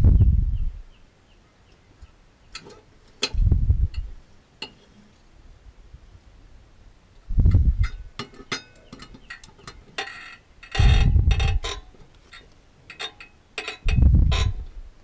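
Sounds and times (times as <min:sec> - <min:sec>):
dull rumbles: 0:03.3 - 0:04.2, 0:07.3 - 0:08.0, 0:10.8 - 0:11.8, 0:13.9 - 0:15.0.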